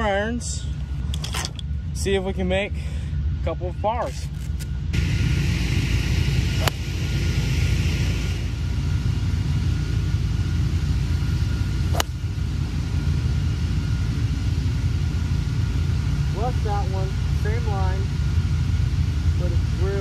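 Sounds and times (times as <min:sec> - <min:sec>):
steady low rumble: 0:00.0 - 0:20.0
golf club hitting ball: 0:06.6 - 0:06.9, 0:11.9 - 0:12.2.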